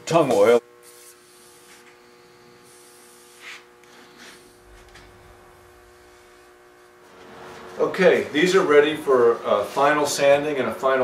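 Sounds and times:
electrical hum: 0:00.0 - 0:11.0
brush swishing over wood: 0:09.1 - 0:10.3.

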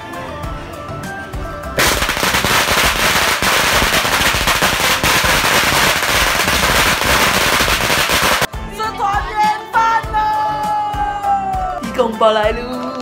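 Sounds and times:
firecrackers banging rapidly: 0:01.8 - 0:08.5.

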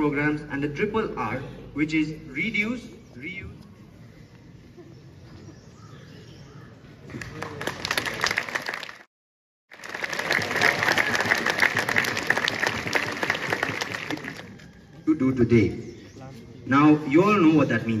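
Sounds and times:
crowd of children applauding: 0:07.1 - 0:09.1, 0:09.7 - 0:14.9.

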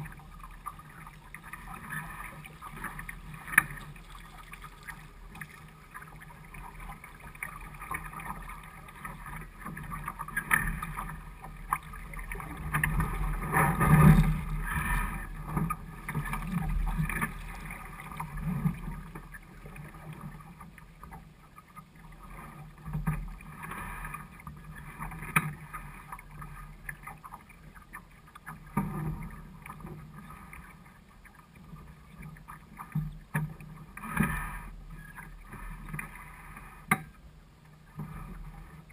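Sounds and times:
knocks and clicks from boat: 0:06.5 - 0:30.8.

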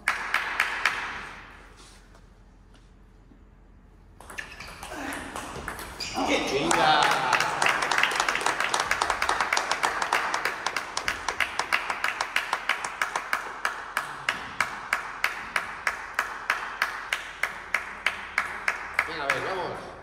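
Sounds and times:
crowd clapping in rhythm: 0:00.0 - 0:01.4, 0:06.5 - 0:19.9
crowd cheering: 0:06.2 - 0:13.0.

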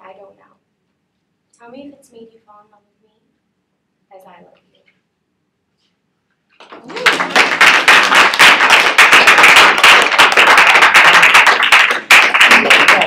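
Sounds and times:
group applauding: 0:06.6 - 0:13.0.

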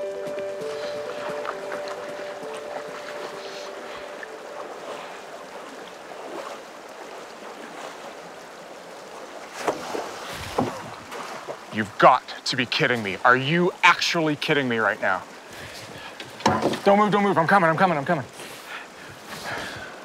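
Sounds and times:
background music: 0:00.0 - 0:05.4
feet splashing through water: 0:00.0 - 0:11.8
river water flowing: 0:00.0 - 0:20.0.

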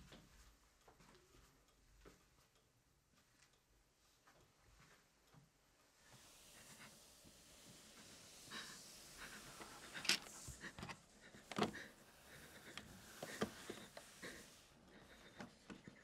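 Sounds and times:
tense panting breaths: 0:06.5 - 0:16.0.

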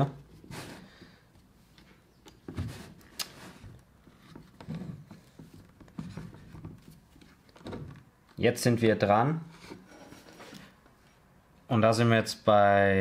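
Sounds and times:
soft knocks and scrapes: 0:01.8 - 0:08.0, 0:09.5 - 0:11.1.

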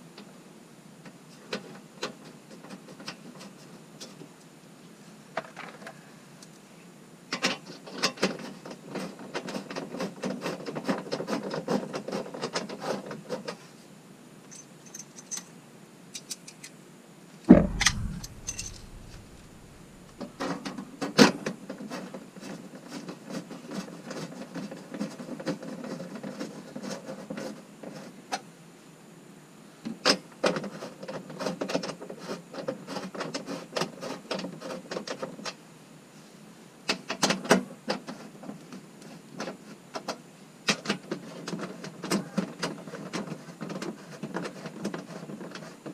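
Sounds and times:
loud knock with low thud: 0:17.5 - 0:20.1
sharp knock: 0:17.5 - 0:20.3.

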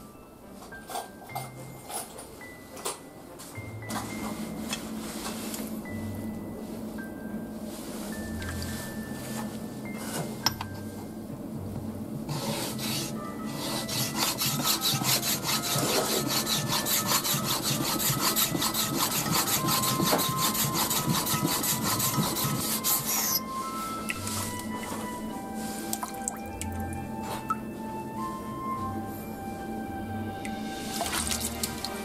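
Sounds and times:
blade rubbing on whetstone: 0:12.3 - 0:23.6.

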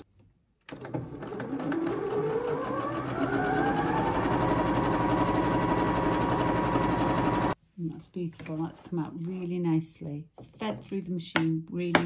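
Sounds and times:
sewing machine needle clatter: 0:00.8 - 0:07.5
sewing machine motor whine: 0:00.8 - 0:07.6.

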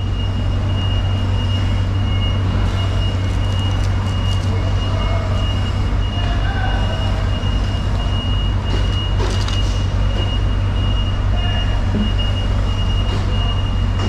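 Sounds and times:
low machine hum: 0:00.0 - 0:14.0.

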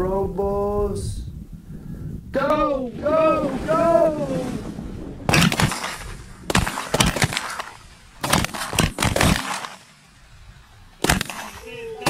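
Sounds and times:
shotgun blasts: 0:05.3 - 0:10.1, 0:11.0 - 0:11.8.

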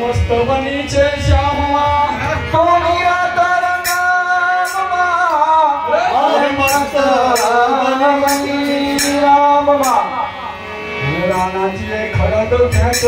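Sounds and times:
harmonium: 0:00.0 - 0:13.0
men singing devotional song: 0:00.0 - 0:13.0.

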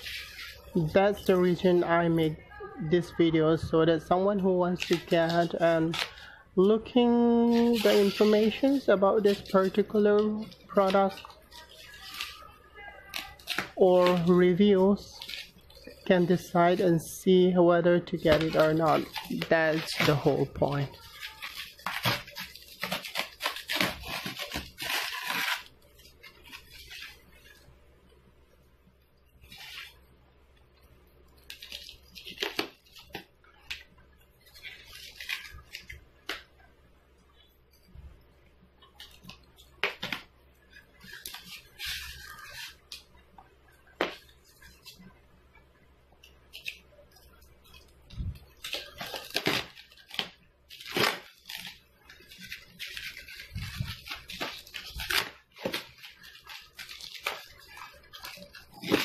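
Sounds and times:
bubble wrap and plastic crinkling: 0:00.0 - 0:59.0
foam pieces scraping: 0:18.1 - 0:27.5.

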